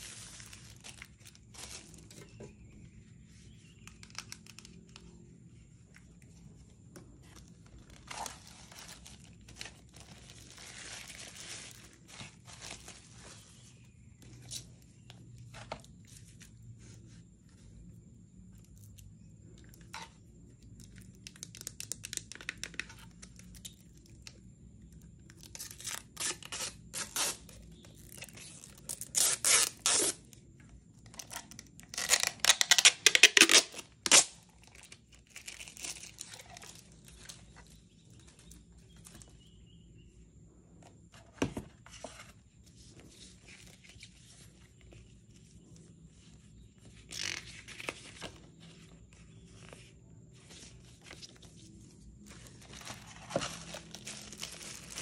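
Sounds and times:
plastic film crinkling and tearing: 0.0 - 2.4, 7.4 - 13.4, 25.4 - 30.4, 31.1 - 38.6, 52.5 - 55.0
paper rustling: 3.2 - 17.7, 41.1 - 55.0.

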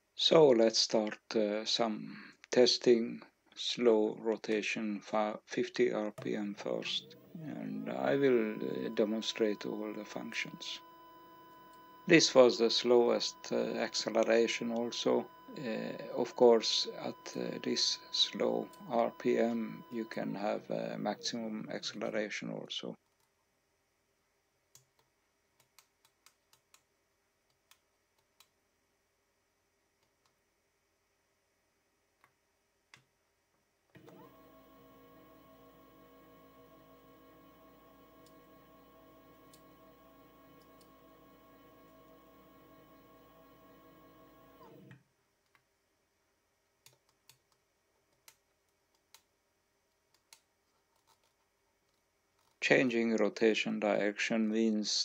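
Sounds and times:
stepper motor whining: 6.2 - 22.0, 34.0 - 45.0.

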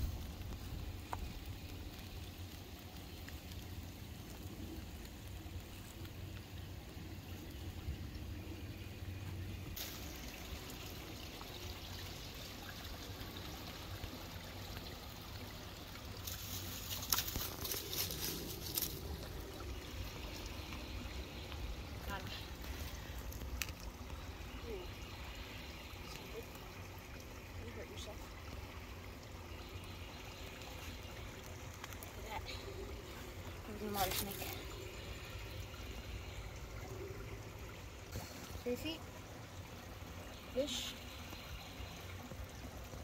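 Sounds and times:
water trickling over rocks: 0.0 - 43.0
dry leaves rustling: 16.3 - 19.5, 33.0 - 34.7.

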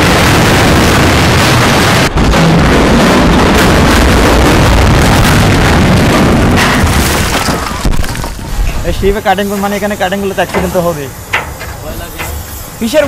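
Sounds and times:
metal structure collapsing: 0.0 - 13.0.

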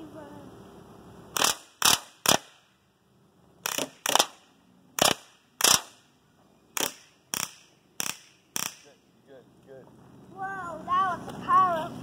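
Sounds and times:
air pistol shots: 1.3 - 2.7, 3.6 - 6.1, 6.8 - 9.0.

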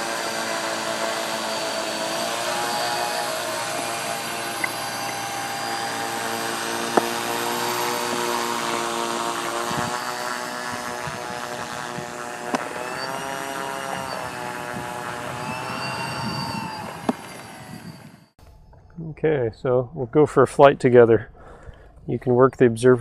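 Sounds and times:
electric model plane motors whining: 0.0 - 18.4.

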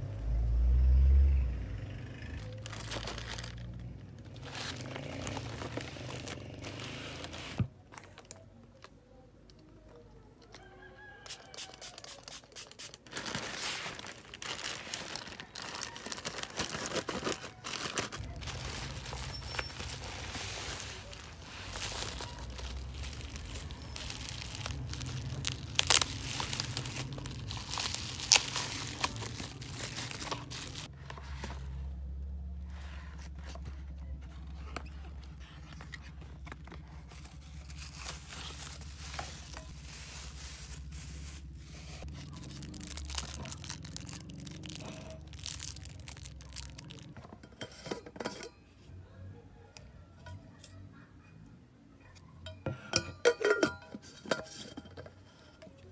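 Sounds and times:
bubble wrap crinkling and tearing: 2.4 - 8.4, 11.5 - 30.9, 35.2 - 47.2
cardboard box being opened: 13.1 - 31.7, 32.8 - 47.1.

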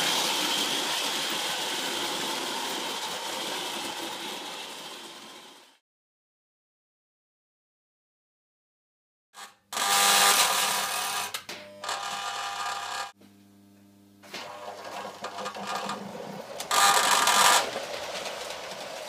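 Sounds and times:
electric hum: 9.9 - 17.6
toy vibrating platform rattling: 14.8 - 19.0.

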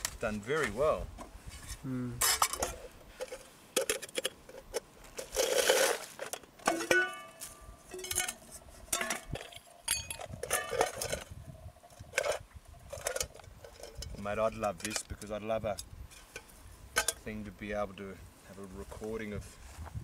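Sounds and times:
rustling: 0.0 - 15.4
metal pots clanking: 2.2 - 15.3, 16.1 - 17.3.

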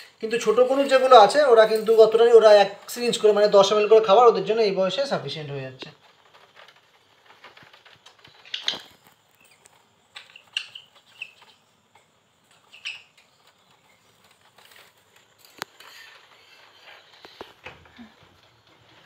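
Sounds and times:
birds flapping on wire mesh: 6.0 - 9.8
high bird chirps: 10.2 - 11.7.

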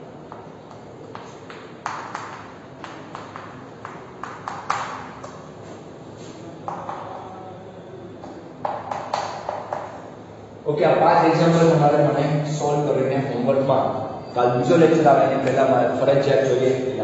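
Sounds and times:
chalk tapping on chalkboard: 0.3 - 5.8, 6.7 - 7.2, 8.6 - 10.0.

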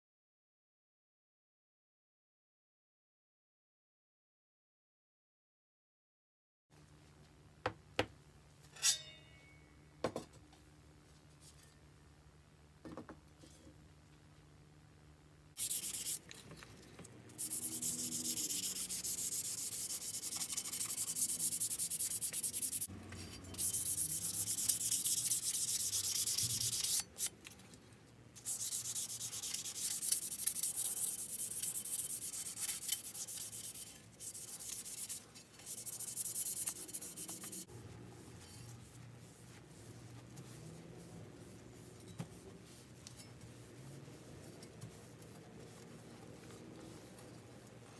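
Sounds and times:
sandpaper scratching on metal: 15.6 - 16.2, 17.4 - 27.3, 28.4 - 37.7.

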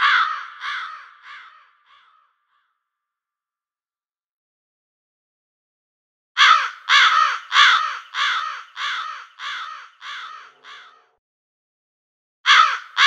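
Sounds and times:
crow cawing: 0.0 - 2.8, 6.4 - 11.2, 12.5 - 13.0.

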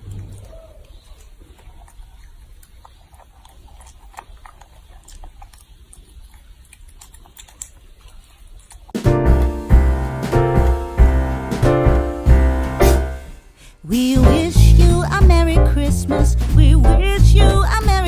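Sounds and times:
piano music: 9.0 - 13.4, 14.2 - 18.0.

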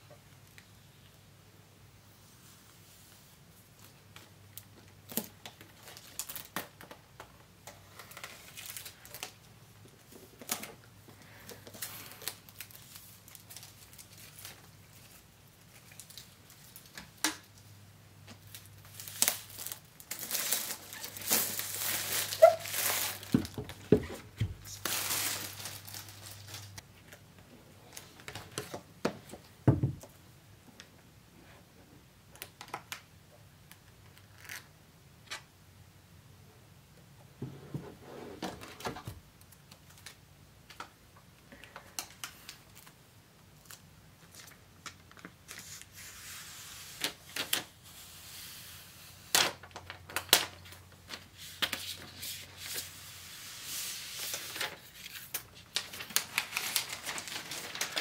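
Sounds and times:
plastic wrap crinkling and tearing: 3.8 - 7.0, 7.8 - 9.5, 10.3 - 17.6, 18.4 - 23.8, 24.5 - 27.2, 49.2 - 58.0.

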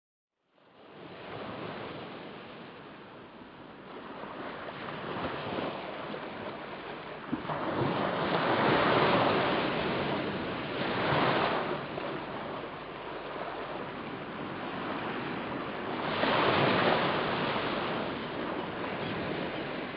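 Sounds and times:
lake waves washing ashore: 0.6 - 19.9.

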